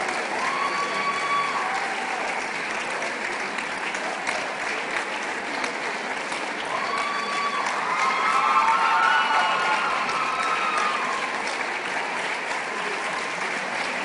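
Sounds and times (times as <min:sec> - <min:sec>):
audience cries: 0:00.0 - 0:02.6, 0:06.6 - 0:13.9
audience applauding: 0:00.0 - 0:14.0.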